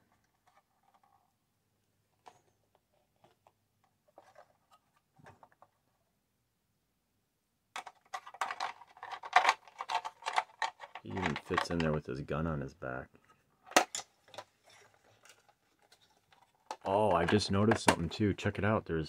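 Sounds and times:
plastic toy parts clicking and scraping: 0.1s - 1.3s, 7.8s - 12.0s, 13.6s - 18.2s.

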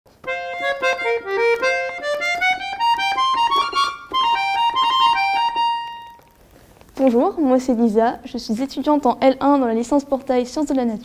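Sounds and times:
accordion playing: 0.2s - 6.3s.

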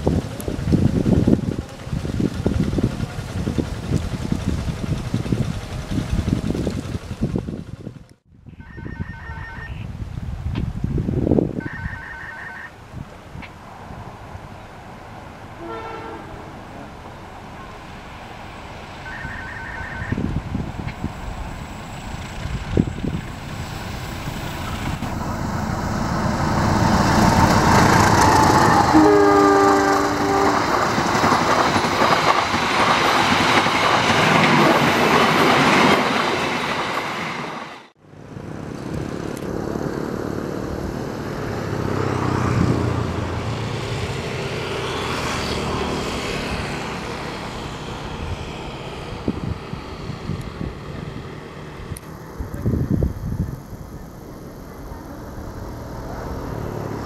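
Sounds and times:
train rumble and wheel clatter: 0.0s - 8.3s, 12.8s - 57.0s
train horn blast: 15.6s - 16.5s, 28.4s - 31.0s.

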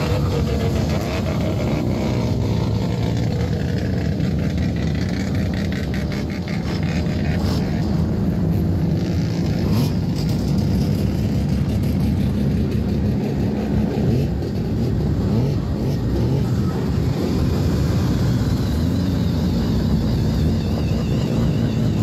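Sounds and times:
many car engines running: 0.0s - 22.0s.

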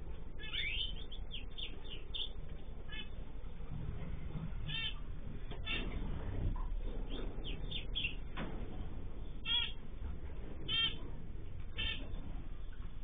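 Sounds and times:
cage birds chirping: 0.0s - 13.0s
short loud bird calls: 4.6s - 5.0s, 9.4s - 9.8s.

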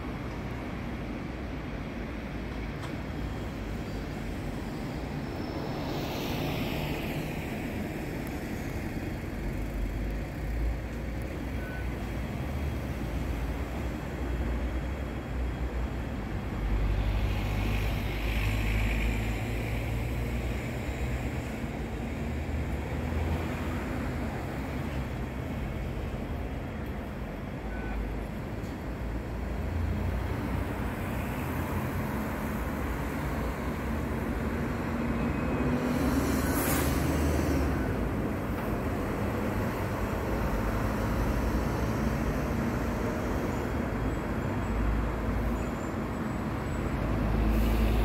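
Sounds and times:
road traffic: 0.0s - 48.0s.

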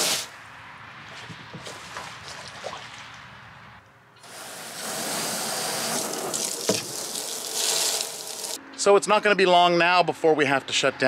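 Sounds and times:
hose water pouring into trough: 0.0s - 0.2s, 4.2s - 8.6s.

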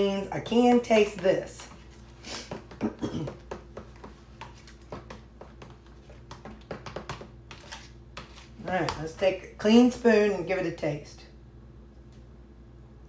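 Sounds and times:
spoon stirring thick dressing: 0.4s - 9.4s.

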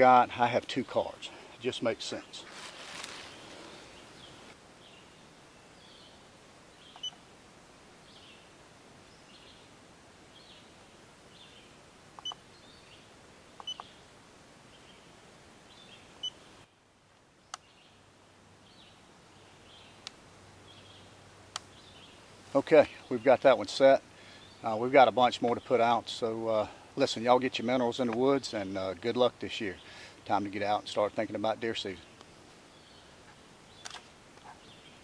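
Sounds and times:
sharp clicks: 33.8s - 34.1s.

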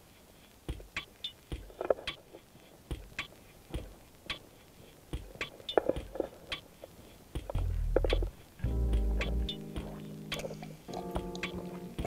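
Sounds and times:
low rumble: 7.6s - 9.5s.

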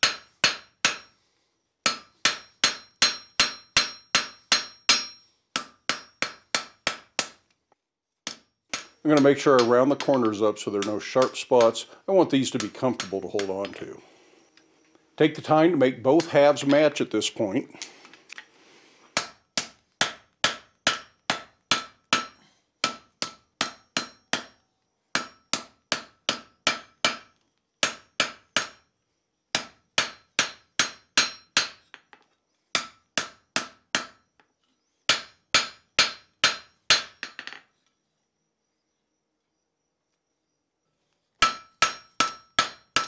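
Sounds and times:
hammer striking steel on anvil: 0.0s - 1.1s, 1.8s - 7.4s, 8.2s - 11.9s, 12.6s - 13.8s, 19.2s - 24.6s, 25.2s - 28.8s, 29.6s - 32.0s, 32.8s - 34.2s, 35.1s - 37.4s, 41.4s - 43.0s.

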